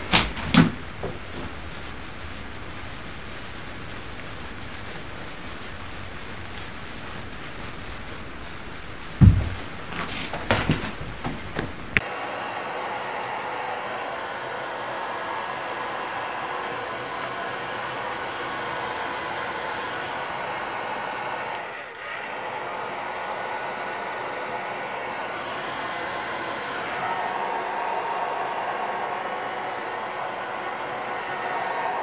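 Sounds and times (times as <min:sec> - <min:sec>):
hair dryer running: 0:09.2 - 0:32.0.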